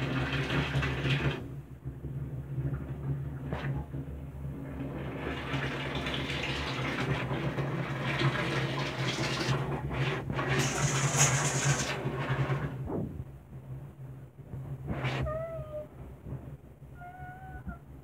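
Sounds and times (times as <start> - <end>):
tap water running into sink: 0.0 - 1.5, 4.8 - 12.8
cat meowing: 15.2 - 15.9, 17.0 - 17.9.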